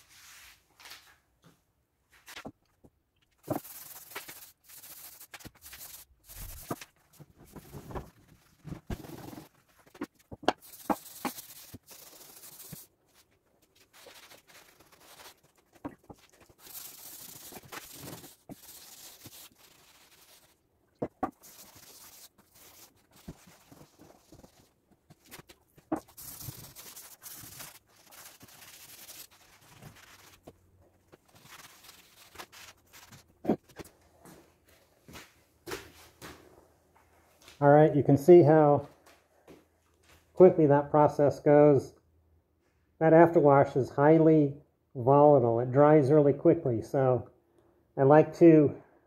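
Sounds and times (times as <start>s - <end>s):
pad scrubbing wet wood: 3.5s - 6.8s, 10.6s - 12.9s, 13.8s - 20.6s, 21.2s - 30.5s.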